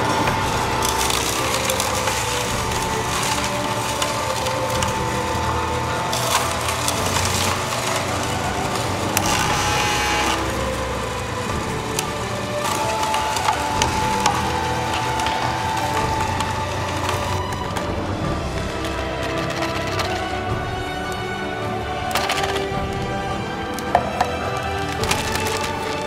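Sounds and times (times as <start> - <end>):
juicer motor hum: 0.0 - 18.1
celery crackling in juicer: 0.0 - 26.0.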